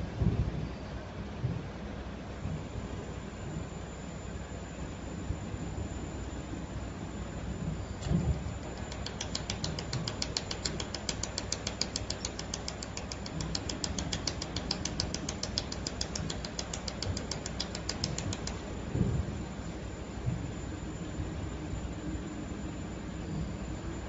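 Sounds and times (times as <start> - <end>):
machine noise: 2.7 - 24.0
laser welding machine ticking: 8.0 - 18.9.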